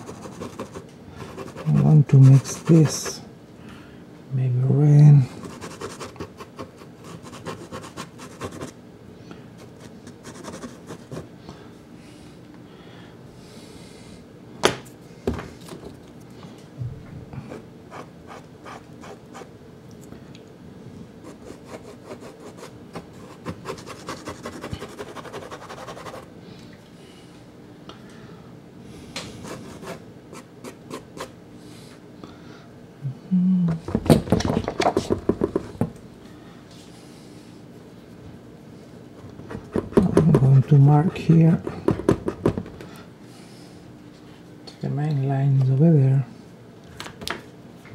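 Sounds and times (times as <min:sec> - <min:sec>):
pastel stick scratching on card: 0:00.0 - 0:03.2, 0:05.4 - 0:08.7, 0:10.1 - 0:11.2, 0:21.3 - 0:26.2.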